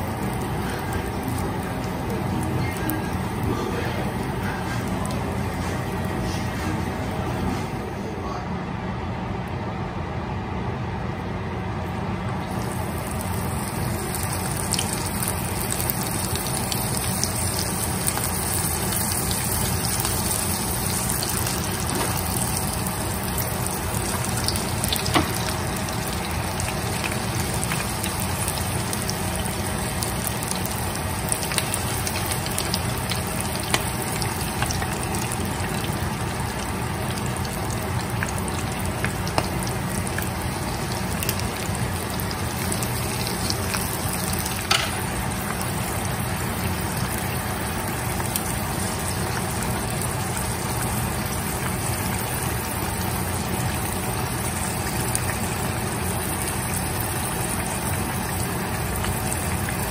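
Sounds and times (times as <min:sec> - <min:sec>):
oil sizzling: 0:00.0 - 0:07.8, 0:12.3 - 0:59.9
oil popping and crackling: 0:12.4 - 0:59.9.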